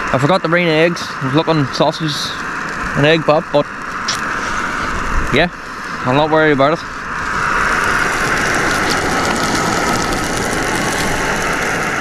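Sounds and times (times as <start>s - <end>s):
gas stove hissing: 0.0s - 12.0s
sausages sizzling in a frying pan: 0.6s - 12.0s.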